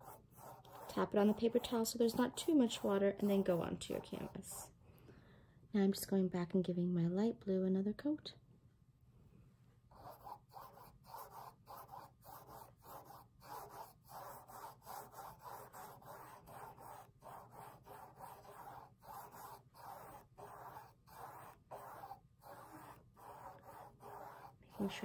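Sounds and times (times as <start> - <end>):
paintbrush rubbing on canvas: 0.0 - 4.7, 10.0 - 25.0.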